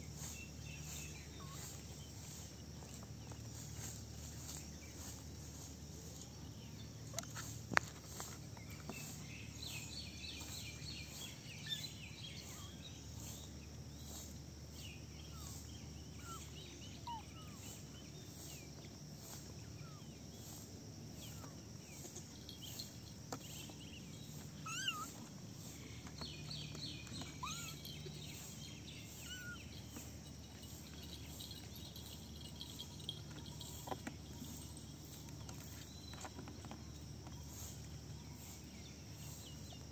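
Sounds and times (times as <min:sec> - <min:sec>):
insect chirping: 0:00.0 - 0:39.9
kittens mewing: 0:24.6 - 0:25.2, 0:27.2 - 0:27.9, 0:29.1 - 0:29.7.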